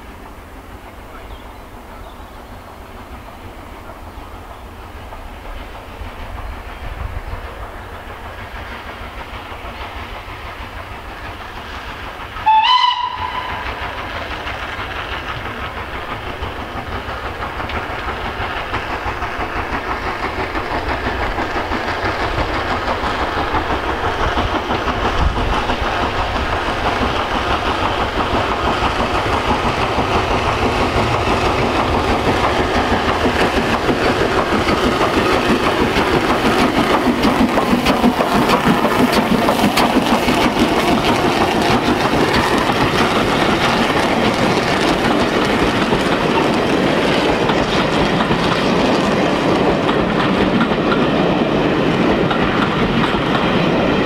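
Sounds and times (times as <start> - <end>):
steam train exhaust approaching: 0.0 - 54.0
steam locomotive whistle: 12.4 - 14.1.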